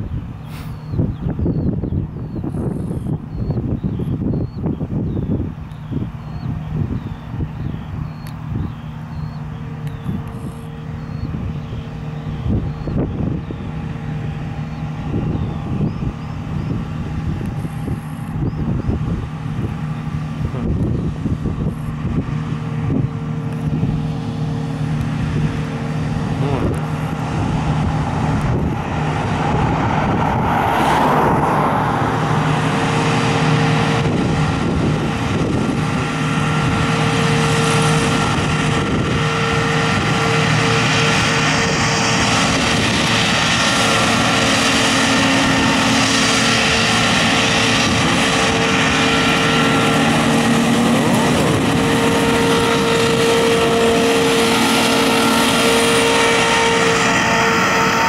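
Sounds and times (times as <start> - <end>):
diesel engine drone: 0.0 - 58.0
machinery rumble: 0.0 - 58.0.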